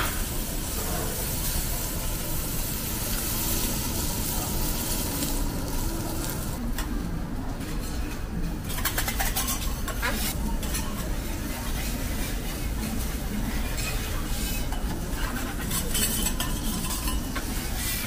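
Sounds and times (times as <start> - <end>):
meat sizzling on a griddle: 0.0 - 6.6
metal spatulas scraping: 8.7 - 11.0, 13.6 - 18.0.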